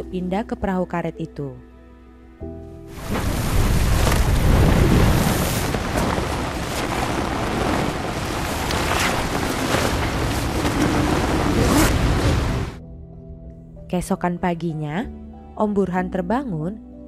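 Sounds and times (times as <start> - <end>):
heavy wind and rain: 2.9 - 12.8
waves washing against raft: 2.9 - 12.8.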